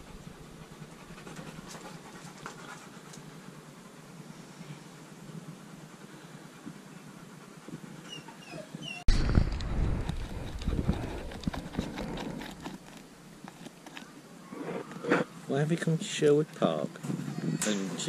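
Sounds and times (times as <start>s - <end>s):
dog scratching in dirt: 9.6s - 15.3s.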